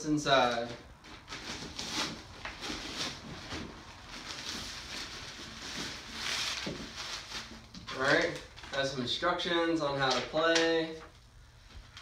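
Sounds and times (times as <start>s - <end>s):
fabric bag rustling and scraping: 1.2s - 8.2s.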